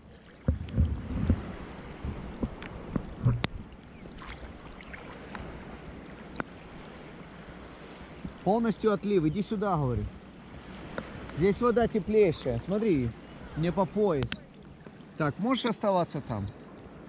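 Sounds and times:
sea water sloshing around wading: 0:00.0 - 0:17.0.

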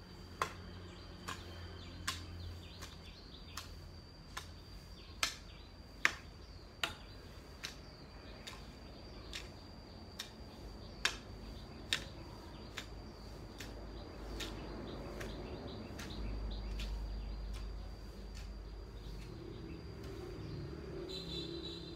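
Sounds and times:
hand tool chopping grass: 0:00.2 - 0:20.8
high-pitched insect buzz: 0:16.9 - 0:21.9.

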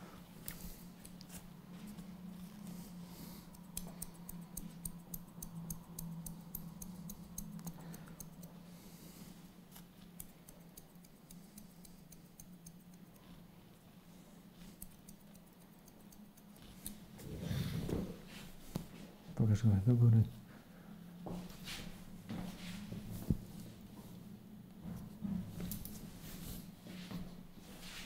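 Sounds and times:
faint low hum: 0:00.0 - 0:28.0
scissors snipping hair: 0:03.3 - 0:08.6, 0:09.7 - 0:13.4, 0:14.6 - 0:17.1, 0:25.6 - 0:26.0.

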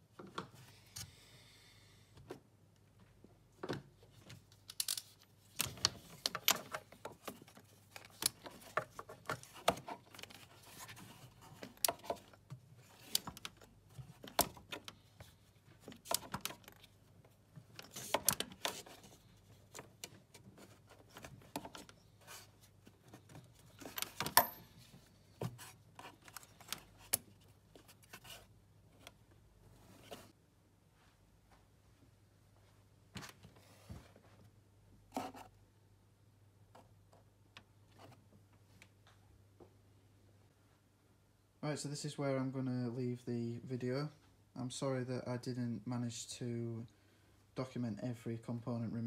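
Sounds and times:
hand tools clinking and rattling: 0:23.8 - 0:24.8.

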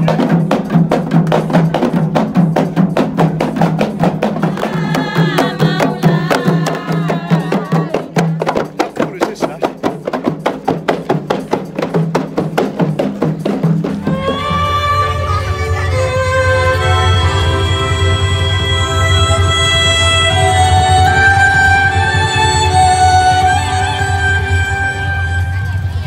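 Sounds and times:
frame drums beating: 0:00.0 - 0:26.0
voices: 0:04.0 - 0:09.9.

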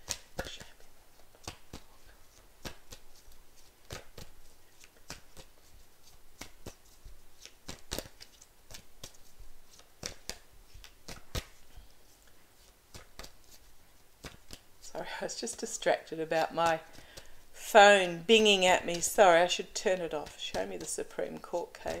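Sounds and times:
cards being shuffled: 0:00.0 - 0:14.7, 0:16.4 - 0:19.2.

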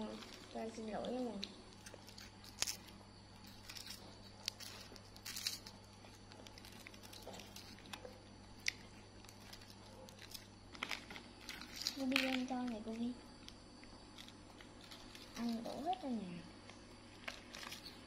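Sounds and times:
faint steady hum: 0:00.0 - 0:18.0
monkey crunching wafer sticks: 0:00.1 - 0:16.0, 0:16.6 - 0:18.0.

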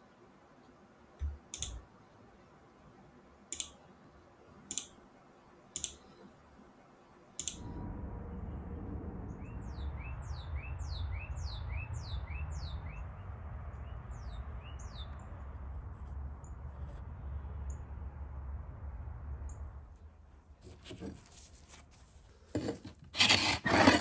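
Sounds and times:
computer mouse clicks: 0:01.2 - 0:01.8, 0:03.5 - 0:03.8, 0:04.6 - 0:05.0, 0:05.7 - 0:06.2, 0:07.4 - 0:07.7
low rumble: 0:07.5 - 0:20.6
bird chirping: 0:08.3 - 0:15.6.

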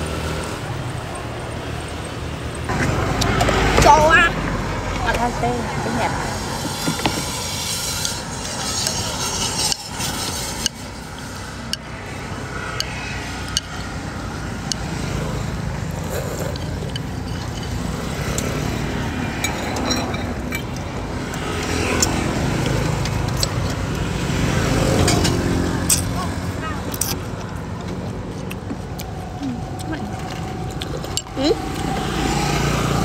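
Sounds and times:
road traffic: 0:00.0 - 0:33.0
utensils clicking against bowl: 0:07.8 - 0:11.9, 0:12.7 - 0:24.2, 0:24.8 - 0:32.0
low engine hum: 0:09.9 - 0:33.0.

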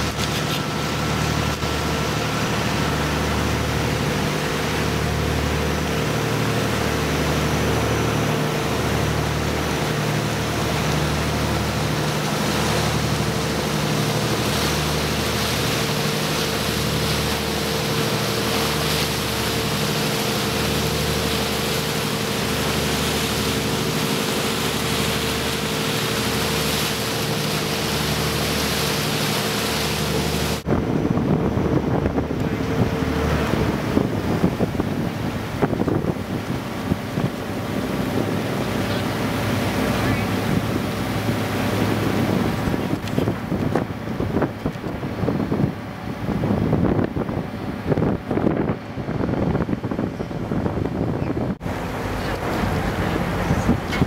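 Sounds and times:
water splashing: 0:00.0 - 0:48.8, 0:49.4 - 0:54.0
boat engine droning: 0:00.0 - 0:54.0
water rushing along hull: 0:00.0 - 0:54.0
wind buffeting microphone: 0:11.7 - 0:54.0.

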